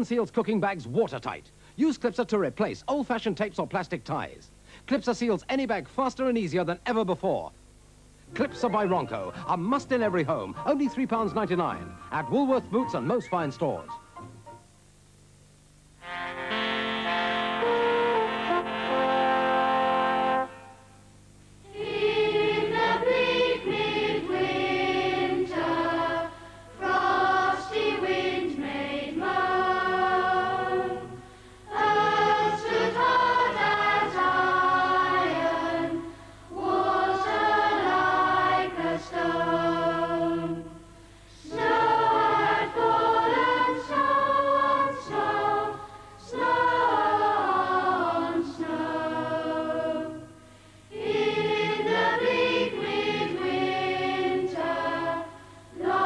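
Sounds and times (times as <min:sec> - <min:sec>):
choir singing: 0:21.6 - 0:56.0.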